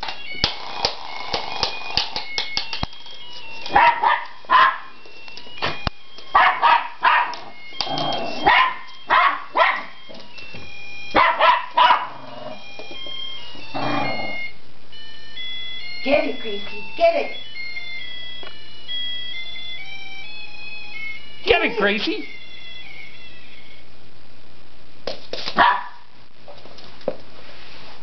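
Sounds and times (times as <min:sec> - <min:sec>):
dog barking: 0:03.7 - 0:04.9, 0:06.4 - 0:07.4, 0:08.4 - 0:10.0, 0:11.2 - 0:12.2, 0:25.6 - 0:26.1
beeping electronic toy tune: 0:12.6 - 0:23.8.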